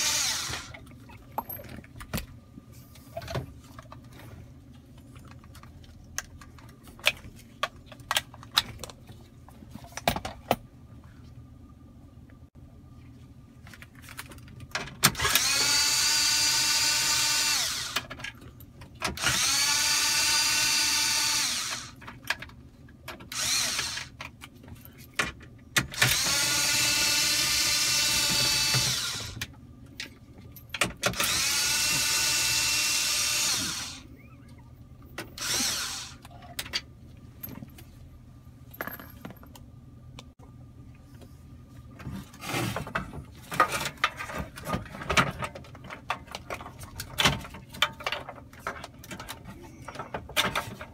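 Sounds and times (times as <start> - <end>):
cordless screwdriver motor whine: 0.0 - 0.7, 15.2 - 18.0, 19.2 - 22.0, 23.4 - 24.1, 31.2 - 34.1, 35.4 - 36.2.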